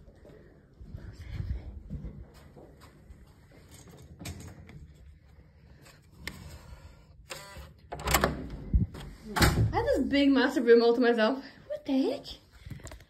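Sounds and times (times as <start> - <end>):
keycard lock whirring buzz: 7.2 - 8.5
door handle clunking: 7.9 - 8.6.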